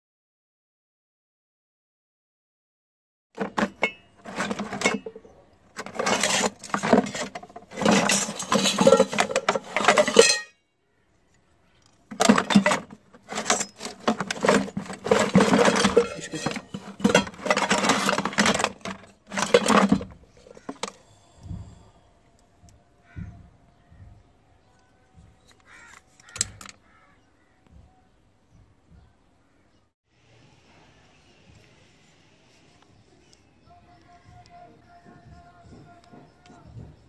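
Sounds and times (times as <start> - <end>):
scrap metal clattering in tub: 3.4 - 10.5, 12.1 - 21.0.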